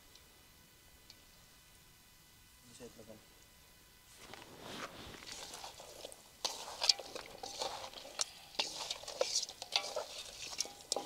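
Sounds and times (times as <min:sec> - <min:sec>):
wet squelches of raw meat: 0:05.1 - 0:11.0.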